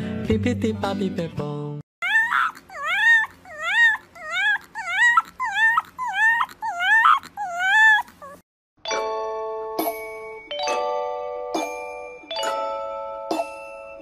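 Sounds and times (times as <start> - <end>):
dog whining and yelping: 2.0 - 8.4.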